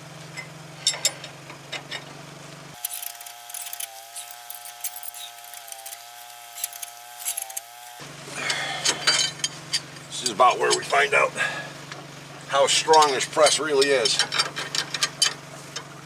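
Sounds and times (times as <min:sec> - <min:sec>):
steady low hum: 0:00.0 - 0:14.5
ratchet wrench clicking: 0:02.8 - 0:07.7.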